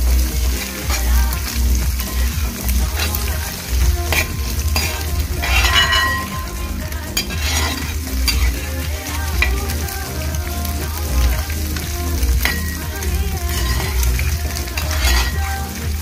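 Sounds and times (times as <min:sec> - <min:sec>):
food sizzling in a metal pan: 0:00.0 - 0:16.0
spatula scraping pan: 0:02.0 - 0:09.7, 0:12.4 - 0:15.8.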